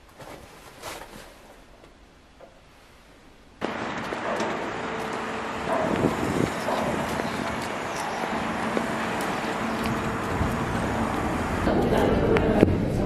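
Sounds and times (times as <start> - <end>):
traffic hum: 3.6 - 13.0.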